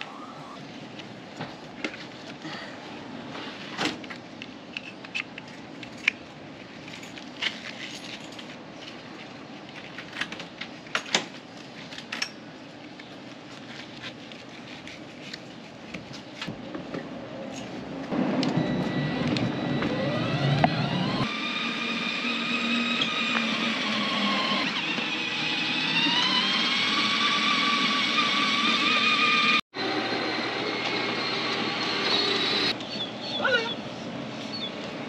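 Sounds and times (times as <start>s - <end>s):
steady background noise: 0.0s - 21.3s.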